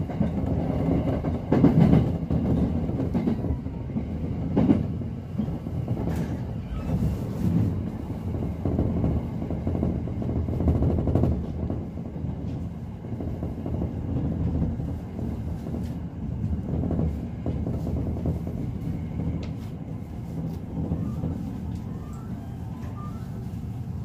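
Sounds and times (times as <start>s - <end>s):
train wheels rumbling on track: 0.0s - 24.0s.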